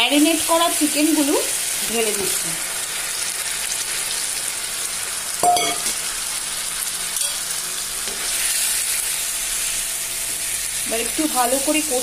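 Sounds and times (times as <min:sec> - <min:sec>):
chicken sizzling in hot oil: 0:00.0 - 0:12.0
spatula clanking against pan: 0:05.4 - 0:06.0.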